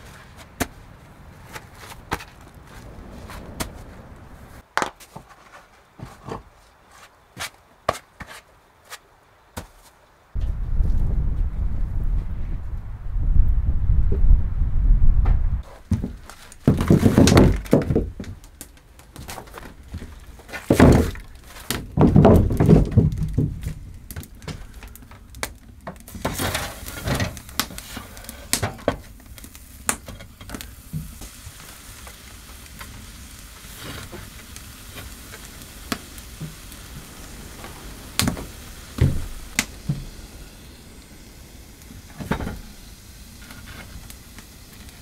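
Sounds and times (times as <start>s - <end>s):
faint steady hiss: 0.0s - 45.0s
stones thudding on wooden floor: 15.9s - 18.4s, 19.2s - 24.6s.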